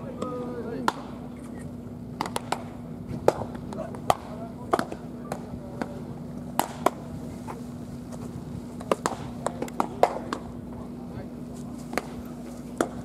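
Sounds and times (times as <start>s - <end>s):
steady low hum: 0.0s - 13.0s
baseballs smacking into gloves: 2.2s - 7.1s, 8.8s - 10.5s, 11.8s - 13.0s.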